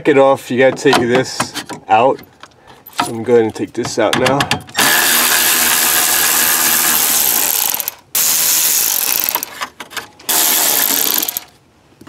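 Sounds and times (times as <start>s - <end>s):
power tool spinning bolts: 4.7s - 9.6s, 10.2s - 11.6s.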